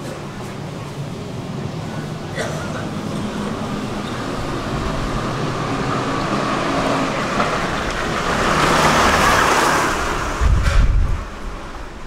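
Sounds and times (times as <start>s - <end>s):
street traffic: 0.0s - 12.0s
motor vehicle passing close by: 2.8s - 11.5s.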